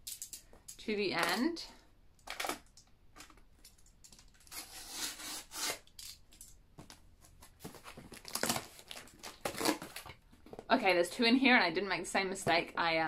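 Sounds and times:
blade scraping cardboard: 0:04.5 - 0:05.8.

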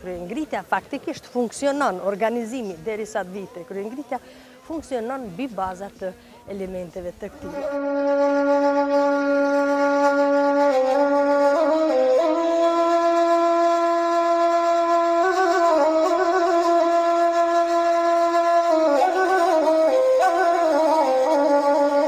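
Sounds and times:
wind instrument slow melody: 0:07.2 - 0:22.0.

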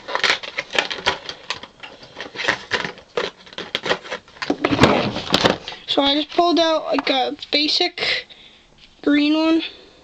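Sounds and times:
plastic marker pack clicking: 0:00.0 - 0:04.6
plastic rustling: 0:00.0 - 0:07.6.

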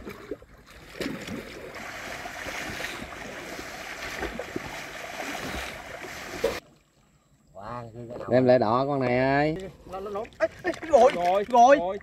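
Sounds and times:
rushing water: 0:00.0 - 0:07.0.

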